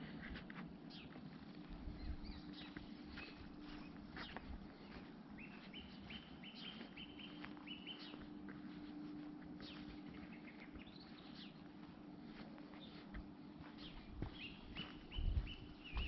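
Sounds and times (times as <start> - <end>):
faint low hum: 0.0 - 16.0
songbird chirping: 0.9 - 16.0.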